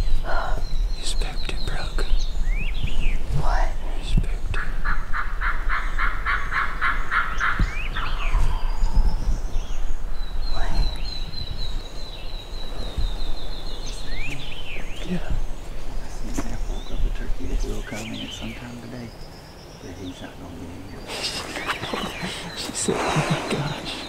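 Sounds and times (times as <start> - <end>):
songbird trill: 0.0 - 24.0.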